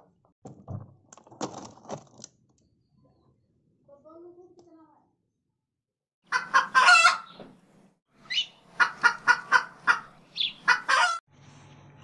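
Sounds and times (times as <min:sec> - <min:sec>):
chicken call: 0:06.3 - 0:07.3, 0:10.7 - 0:11.2
chicken clucking: 0:06.3 - 0:07.4, 0:08.3 - 0:11.2.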